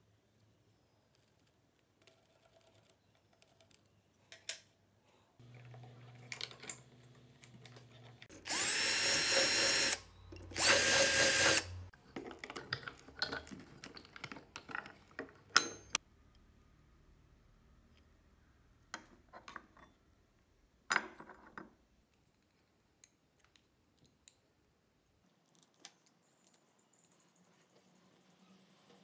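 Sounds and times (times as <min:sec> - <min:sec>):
electric drill boring through metal: 0:08.3 - 0:11.9
handling clicks and knocks: 0:12.0 - 0:16.0.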